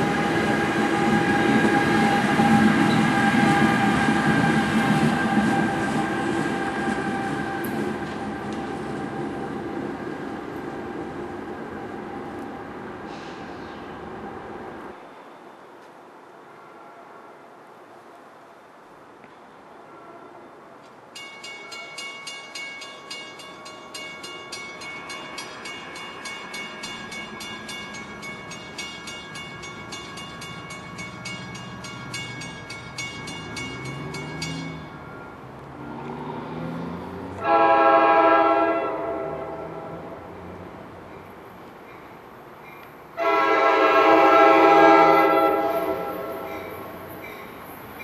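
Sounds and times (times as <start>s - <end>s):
train horn blast: 0.0s - 8.2s, 19.8s - 20.6s, 37.3s - 40.2s, 43.2s - 46.9s
train rumbling: 0.0s - 15.2s, 20.6s - 48.0s
warning bell ringing: 21.2s - 35.0s.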